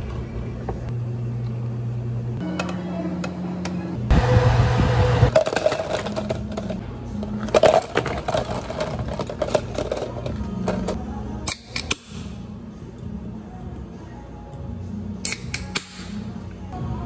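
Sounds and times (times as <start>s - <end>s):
low hum: 0.0s - 8.0s
ice cubes clinking into cups: 5.3s - 6.8s.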